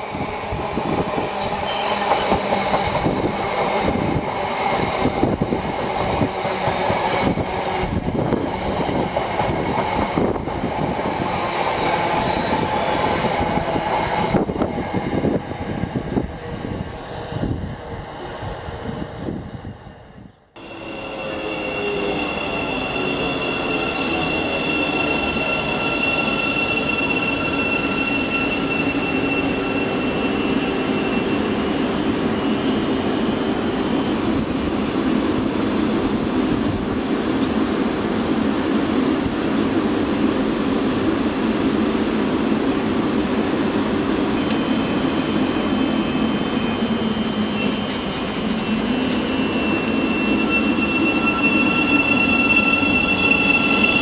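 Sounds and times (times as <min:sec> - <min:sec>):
train humming at platform: 0:00.0 - 0:54.0
electric train braking whine: 0:20.6 - 0:35.5, 0:44.3 - 0:54.0
train high whine pulling away: 0:20.6 - 0:38.2, 0:42.4 - 0:54.0.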